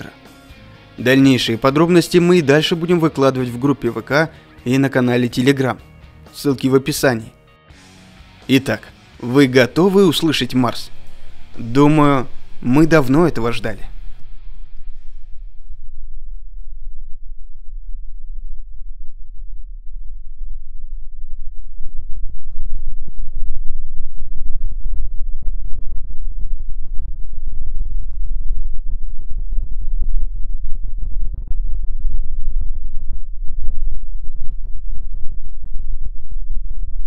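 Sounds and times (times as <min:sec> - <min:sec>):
deep low rumble: 0:09.2 - 0:37.0.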